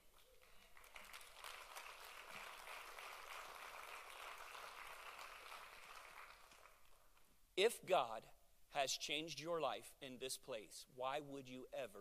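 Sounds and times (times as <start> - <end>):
congregation applauding: 0.0 - 7.2.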